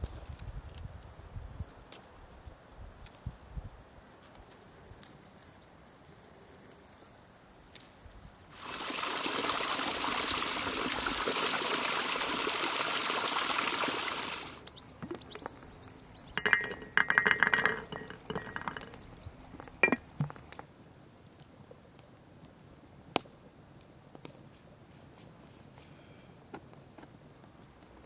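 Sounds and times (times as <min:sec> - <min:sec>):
water pouring into glass teapot: 0:16.3 - 0:19.0, 0:19.8 - 0:20.0
rattling clinks against glass: 0:16.4 - 0:19.0, 0:19.8 - 0:20.1.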